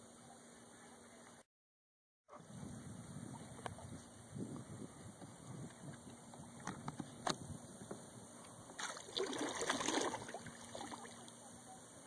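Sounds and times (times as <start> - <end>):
paddle splashing through water: 8.8 - 11.3.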